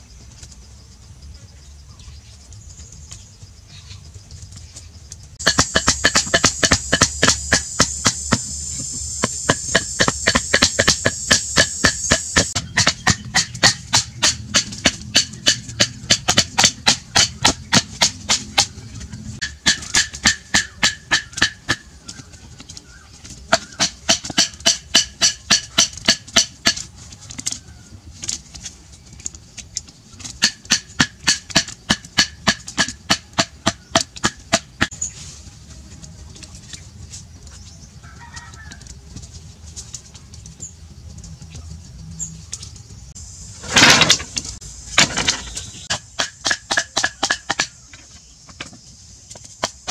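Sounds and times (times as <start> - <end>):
faint forest background: 0.0 - 49.9
rapid knocking on wooden poles: 4.4 - 35.0, 43.7 - 49.9.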